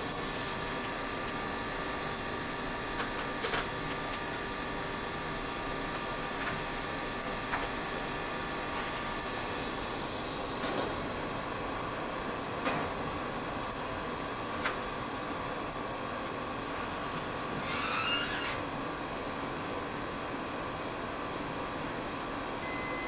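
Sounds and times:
machine hum and hiss: 0.0 - 23.0.

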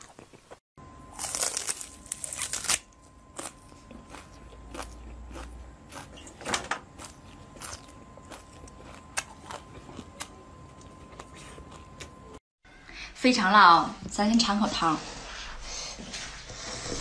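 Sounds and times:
green onion crunching: 0.0 - 12.2.

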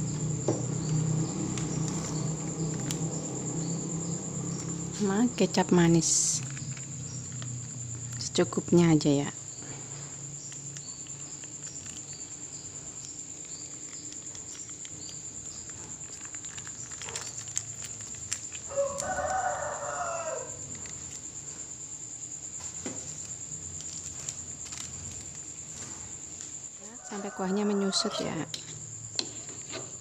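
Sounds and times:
high-pitched insect chirring: 0.0 - 25.5.

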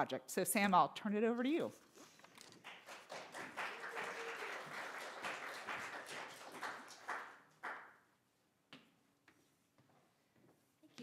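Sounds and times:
audience clapping: 2.5 - 8.0.

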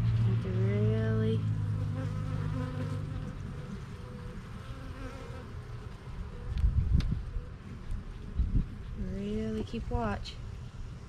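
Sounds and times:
bees buzzing: 1.6 - 6.0.

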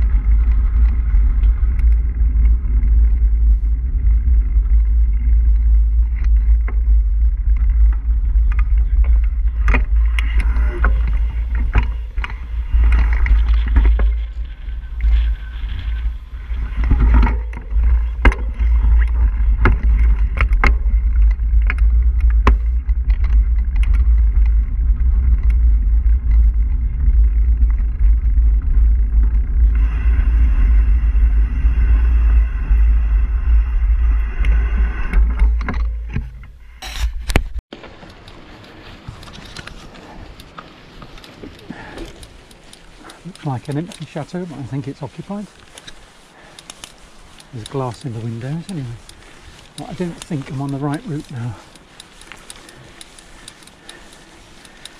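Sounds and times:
bike clicks and rattles: 0.0 - 54.9
wind rumble on microphone: 0.0 - 54.9
tyres hissing on gravel: 37.7 - 54.9.

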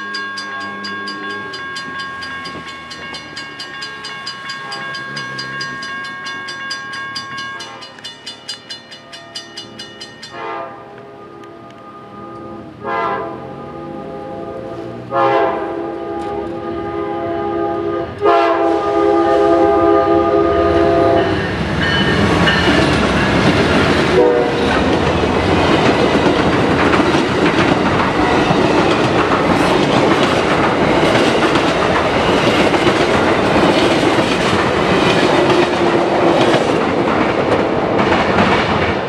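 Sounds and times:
wheels clacking over rail joints: 0.0 - 10.4, 21.2 - 39.0
train rumbling past: 0.0 - 39.0
train horn: 10.3 - 22.3, 24.0 - 24.9.

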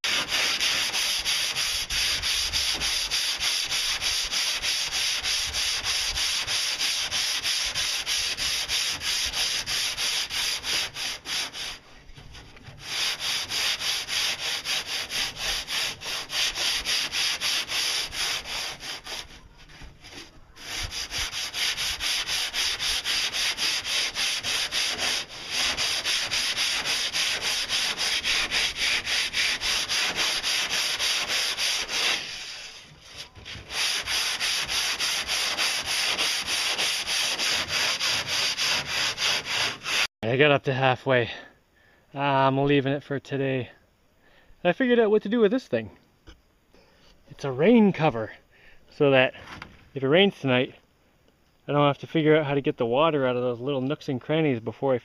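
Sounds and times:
sandpaper rasping on hull: 0.0 - 40.1.

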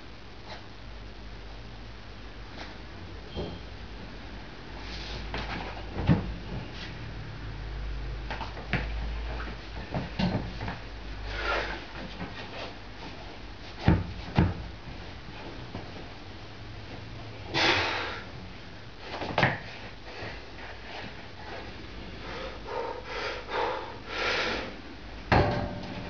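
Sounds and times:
barbell plates knocking: 25.3 - 26.0.

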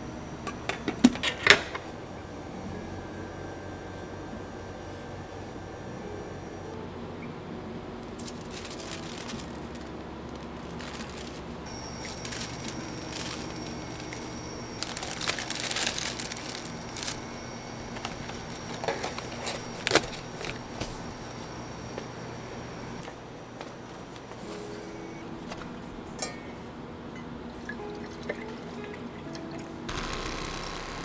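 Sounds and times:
steady low hum: 0.0 - 31.0
plastic bag crinkling: 8.1 - 20.8.

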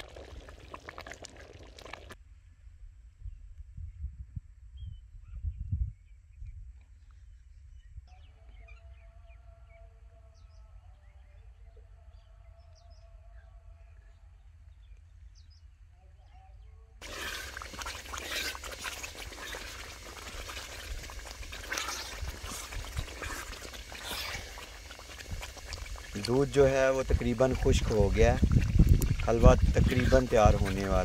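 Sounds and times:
halwa sizzling and bubbling in pot: 0.0 - 2.2, 17.0 - 31.0
wooden spoon scraping pot: 17.0 - 31.0.

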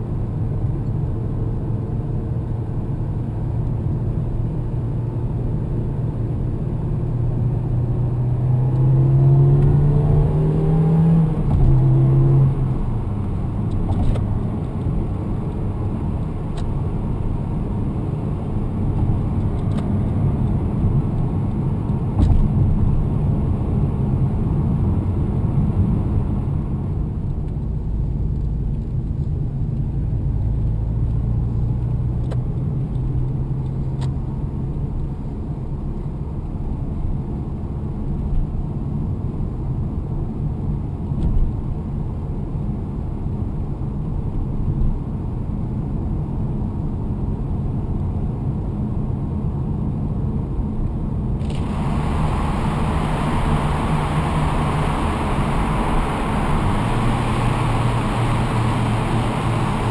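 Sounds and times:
road noise: 0.0 - 59.9
car engine accelerating: 7.6 - 26.4, 51.3 - 59.9.

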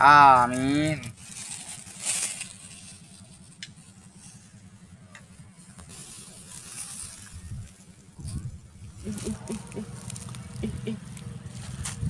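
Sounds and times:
wind rumble on microphone: 7.0 - 10.8, 11.5 - 12.0.

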